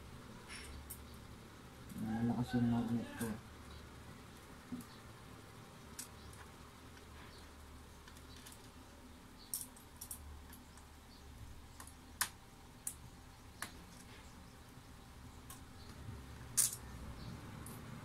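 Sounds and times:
small metal screws clicking: 0:09.4 - 0:10.9, 0:15.4 - 0:16.9.

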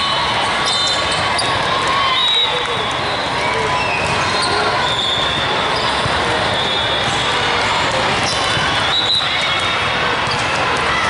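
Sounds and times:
chatter of voices: 0:00.0 - 0:11.0
balls bouncing and being struck: 0:02.6 - 0:11.0.

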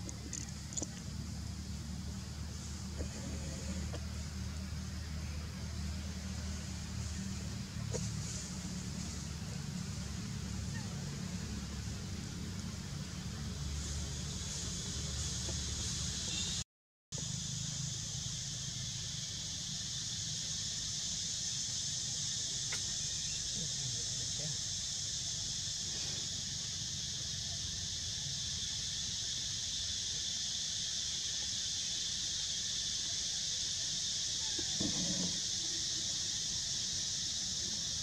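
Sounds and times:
insect chorus: 0:00.0 - 0:16.6, 0:17.2 - 0:38.0.

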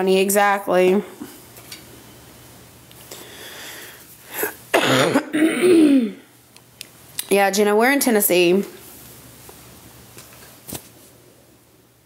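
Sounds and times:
woman sneezing: 0:04.4 - 0:06.2.

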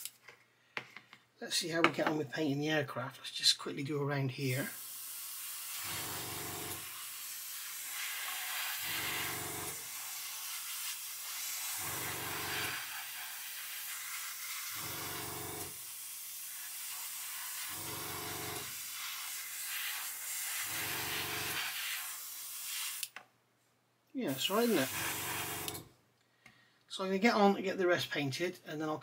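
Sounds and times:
airbrush hissing: 0:04.5 - 0:23.1, 0:24.2 - 0:25.8.

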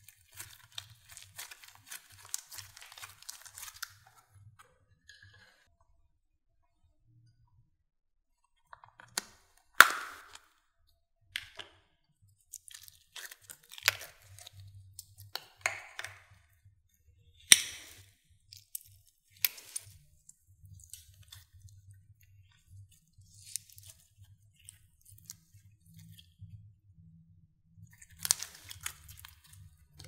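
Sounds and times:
slime squishing and crackling: 0:00.0 - 0:04.3, 0:12.4 - 0:16.4, 0:17.4 - 0:26.4, 0:27.9 - 0:30.0
sharp slime pops: 0:09.2 - 0:10.4, 0:17.5 - 0:18.0.

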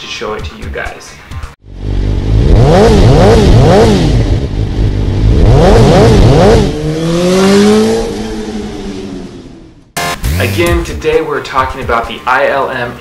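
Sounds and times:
engine revving: 0:01.6 - 0:11.0.

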